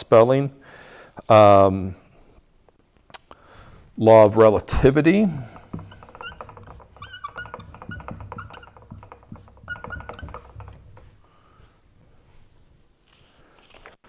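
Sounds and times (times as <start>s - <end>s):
marker squeaking on whiteboard: 5.3s - 11.2s.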